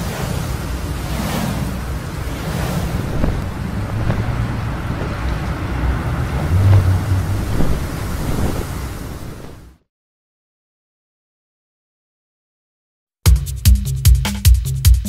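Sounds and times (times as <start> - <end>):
low rumble: 0.0 - 9.8
rushing wind: 0.0 - 9.8.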